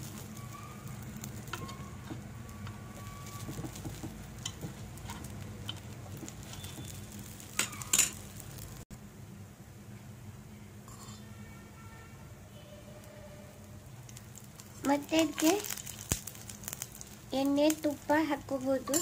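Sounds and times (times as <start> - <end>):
batter sizzling: 0.0 - 8.9, 12.6 - 19.0
metal spoon scraping a pan: 3.3 - 8.3.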